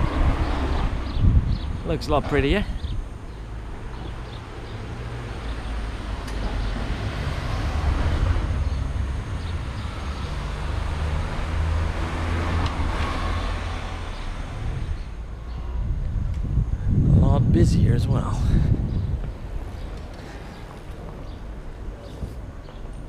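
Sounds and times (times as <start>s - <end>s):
cars driving past: 0.0s - 1.8s, 2.8s - 15.9s.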